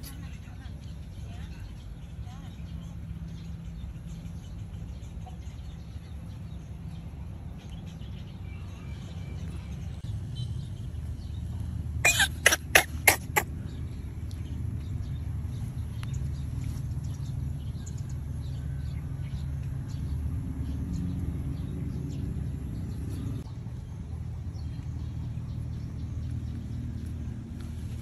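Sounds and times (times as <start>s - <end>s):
low engine rumble: 0.0s - 28.0s
faint bird chirps: 12.0s - 13.4s.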